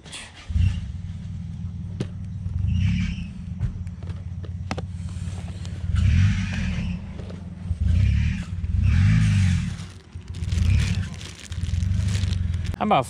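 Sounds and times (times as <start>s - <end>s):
low rumbling: 1.0s - 12.8s.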